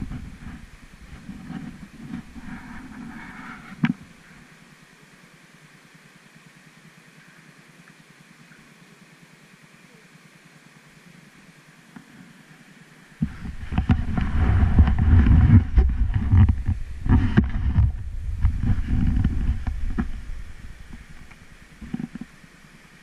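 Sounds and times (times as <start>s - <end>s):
rumbling and knocks on rough road: 0.0s - 3.0s, 13.2s - 22.4s
wind buffeting microphone: 0.0s - 4.2s, 13.2s - 22.4s.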